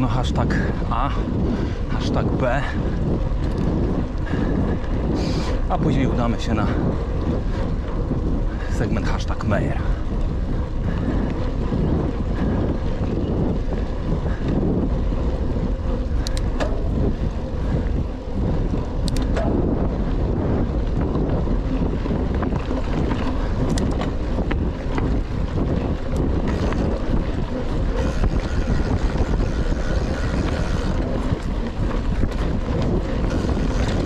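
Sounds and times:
bike clicks and rattles: 0.0s - 34.0s
wind buffeting microphone: 0.0s - 34.0s.

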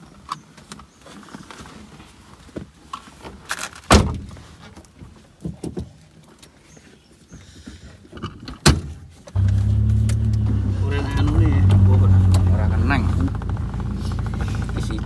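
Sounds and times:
car door thudding shut: 3.9s - 4.3s
sharp thunk: 3.9s - 4.3s.

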